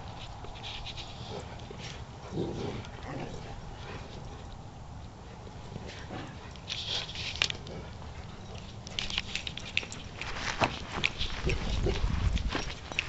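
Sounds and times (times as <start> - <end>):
footsteps crunching on frozen grass: 10.0 - 13.0.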